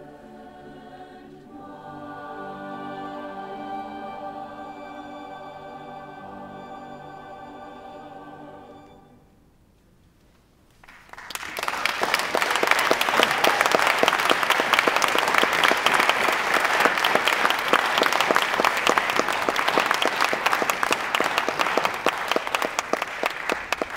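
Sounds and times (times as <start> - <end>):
audience applauding: 10.8 - 23.9.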